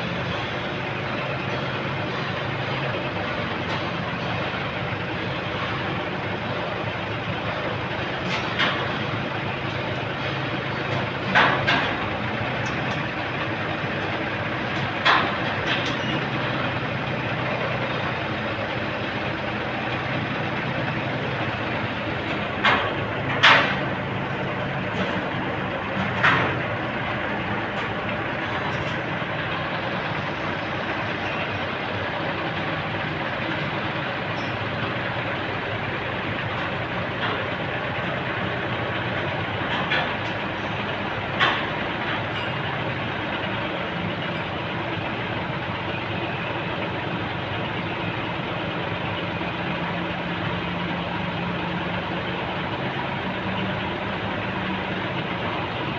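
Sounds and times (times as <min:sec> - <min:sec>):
truck engine running: 0:00.0 - 0:55.9.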